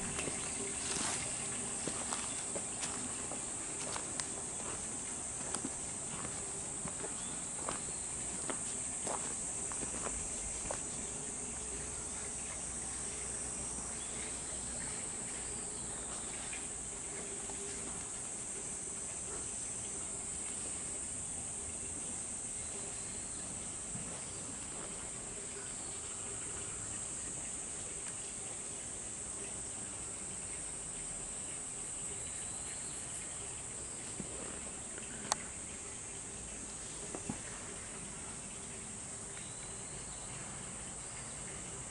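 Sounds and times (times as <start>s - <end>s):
light footsteps: 0.0s - 11.0s
insects chorus: 0.0s - 41.9s.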